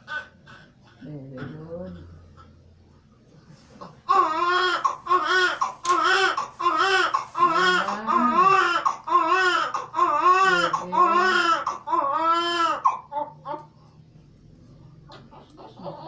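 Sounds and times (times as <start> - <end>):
newborn baby crying: 0.0 - 0.6, 3.8 - 13.8, 15.1 - 16.0.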